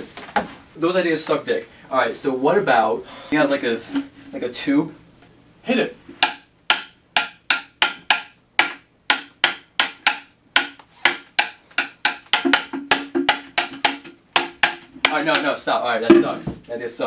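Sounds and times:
stick drumming on plastic container: 0:06.2 - 0:16.4.

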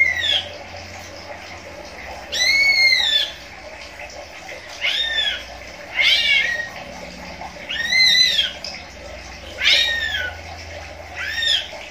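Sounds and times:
bird calling: 0:04.6 - 0:11.9.

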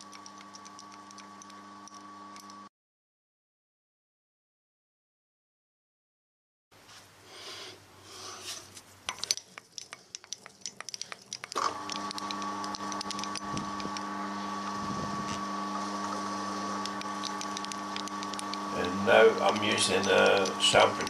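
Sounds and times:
spindle motor humming: 0:00.0 - 0:02.7, 0:10.6 - 0:21.0.

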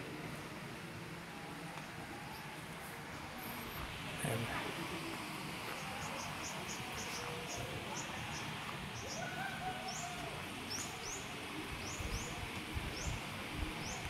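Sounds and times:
outdoor hiss: 0:00.0 - 0:14.0.

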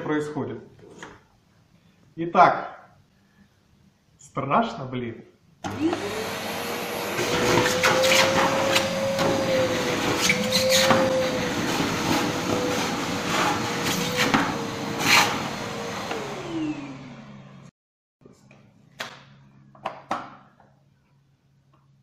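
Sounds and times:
vacuum cleaner running: 0:05.6 - 0:17.7.

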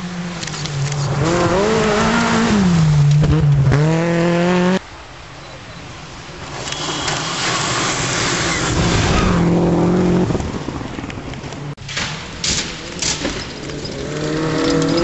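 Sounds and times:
rally car engine at high revs: 0:00.0 - 0:04.8, 0:06.7 - 0:10.8
tyres on loose gravel: 0:06.3 - 0:15.0
approaching rally car engine: 0:06.8 - 0:11.8, 0:12.8 - 0:15.0.

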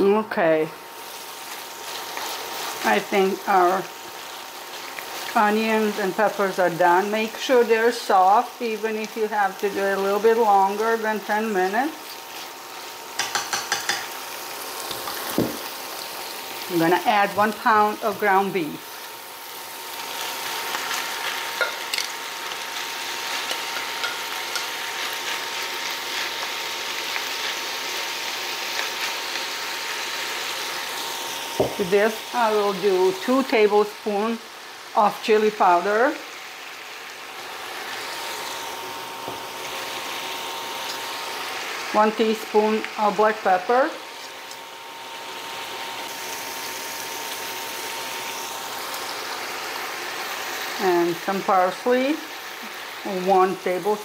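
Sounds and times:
frying pan sizzling and crackling: 0:00.0 - 0:54.0
spatula stirring in pan: 0:01.0 - 0:06.5, 0:12.0 - 0:14.2.

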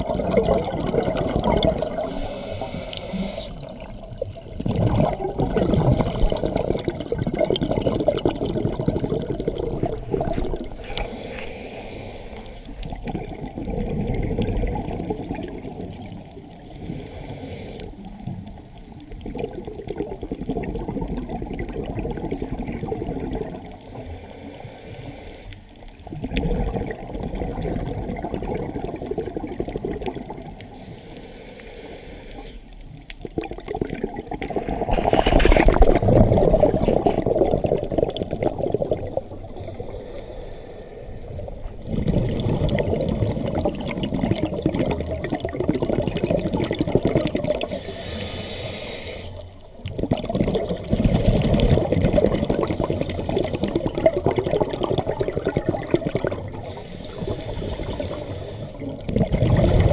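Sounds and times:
gurgling exhaust bubbles: 0:00.0 - 0:02.3, 0:03.5 - 0:11.0, 0:12.8 - 0:16.6, 0:18.2 - 0:23.9, 0:26.0 - 0:30.7, 0:33.2 - 0:39.6, 0:41.6 - 0:47.8, 0:49.7 - 0:59.9
regulator inhale hiss: 0:01.9 - 0:03.7, 0:10.8 - 0:12.9, 0:16.7 - 0:18.2, 0:23.9 - 0:25.9, 0:30.7 - 0:32.8, 0:39.5 - 0:41.7, 0:47.6 - 0:49.7, 0:52.6 - 0:54.0, 0:56.5 - 0:59.0.

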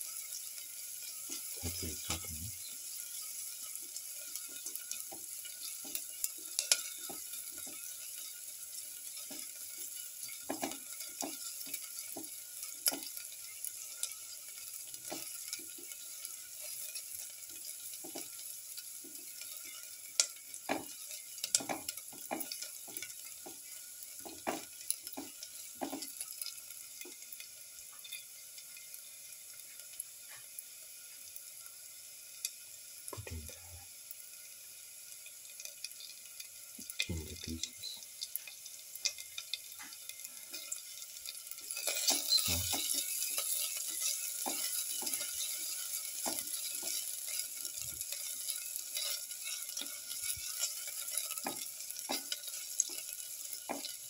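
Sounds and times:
shallots sizzling in oil: 0:00.0 - 0:54.0
spatula scraping pan: 0:41.6 - 0:53.0.

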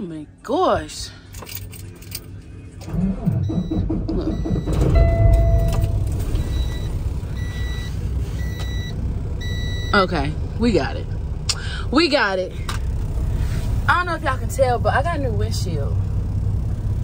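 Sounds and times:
diesel engine cranking and idling: 0:00.4 - 0:17.0
high warning beep: 0:03.4 - 0:10.1.

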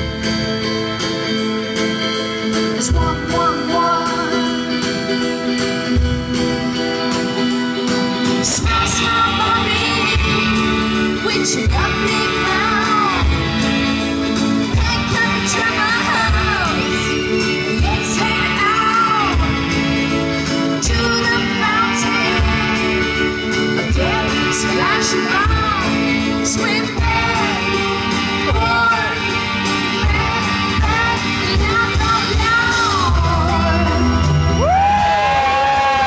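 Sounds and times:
live rock band: 0:00.0 - 0:36.0
woman singing: 0:02.7 - 0:05.3, 0:08.2 - 0:36.0
drums beating: 0:05.1 - 0:36.0.

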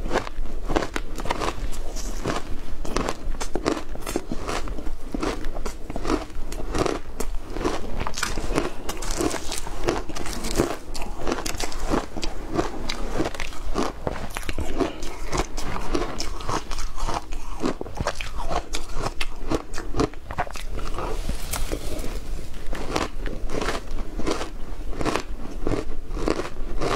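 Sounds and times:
person crunching shaved ice: 0:00.0 - 0:26.9.

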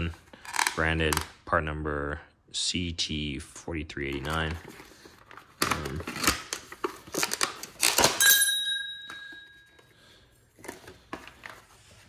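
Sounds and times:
packaging clicks and rustles: 0:00.3 - 0:01.3, 0:04.1 - 0:08.2
metal tool clinking: 0:08.2 - 0:09.8.

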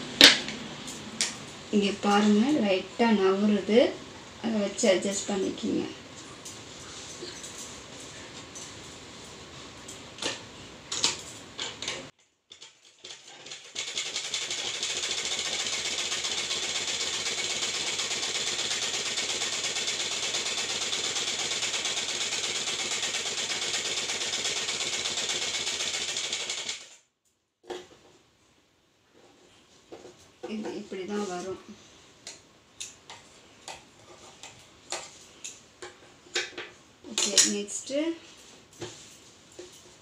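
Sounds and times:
sewing machine running: 0:13.3 - 0:27.0.

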